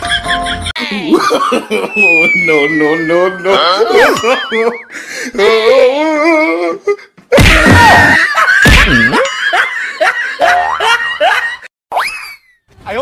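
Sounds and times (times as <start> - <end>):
wobbling cartoon tone: 1.7 - 4.8
swooping tone: 1.8 - 4.8.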